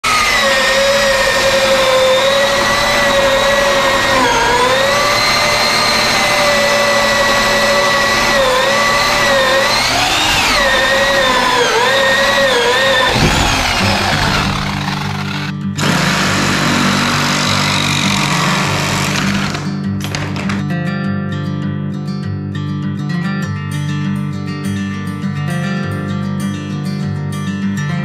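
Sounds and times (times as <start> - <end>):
machine motor whining: 0.0 - 19.6.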